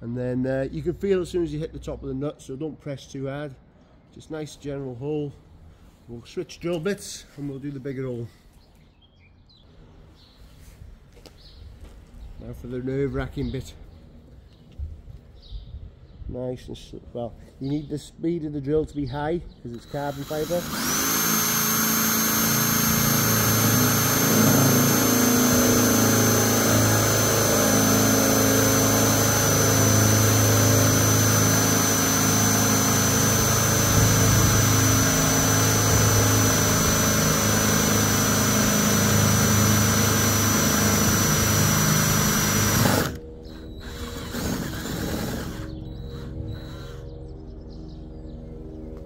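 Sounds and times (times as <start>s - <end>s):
power drill boring high whine: 19.8s - 47.2s.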